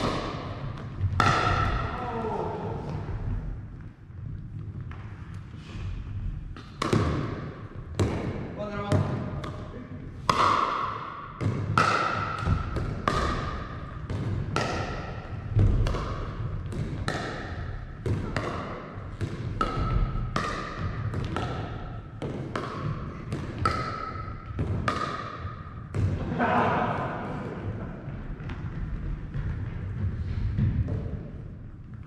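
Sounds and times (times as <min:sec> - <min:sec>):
paddles hitting plastic ball: 0:00.0 - 0:02.0, 0:06.5 - 0:26.3.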